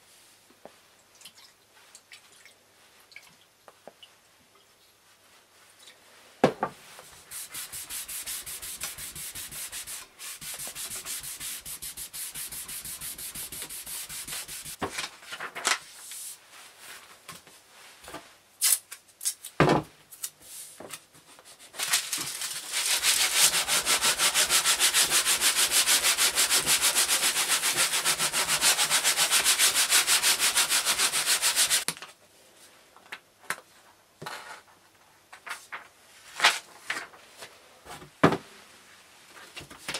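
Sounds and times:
rubbing on paper: 7.2 - 14.8, 21.5 - 31.9.

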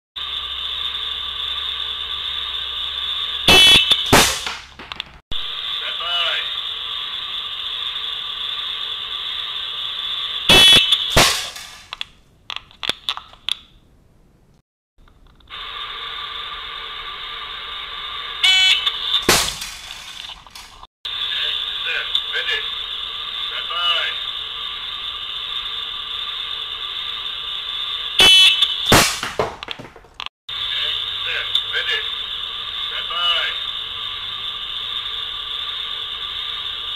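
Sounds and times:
high electronic buzzer tone: 0.2 - 4.1, 10.4 - 11.1, 18.4 - 19.3, 27.8 - 28.9
steady high hiss: 0.2 - 4.7, 5.4 - 12.0, 15.5 - 29.0, 30.5 - 36.9
slingshot crack: 3.9 - 5.2, 11.0 - 12.1, 19.2 - 20.7, 28.8 - 29.9
shot hitting metal can with ring: 4.1 - 4.7, 11.2 - 11.8, 19.3 - 19.8, 28.9 - 29.5
sharp smack: 4.1 - 4.8, 11.2 - 11.6, 19.3 - 19.8, 28.9 - 29.7.

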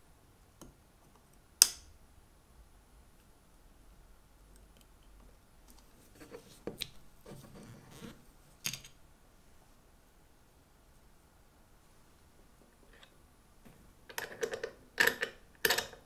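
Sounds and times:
small metal clicks: 14.1 - 16.0.

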